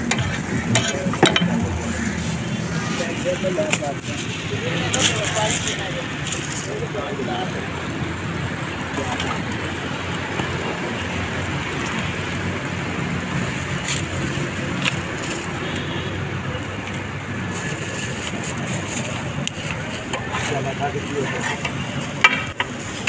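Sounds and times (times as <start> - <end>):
road traffic: 0.0 - 23.0
food frying on a griddle: 17.5 - 23.0.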